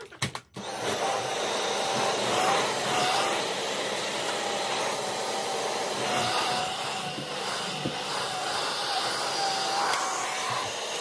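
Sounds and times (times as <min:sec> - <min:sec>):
vacuum cleaner running: 0:00.6 - 0:11.0.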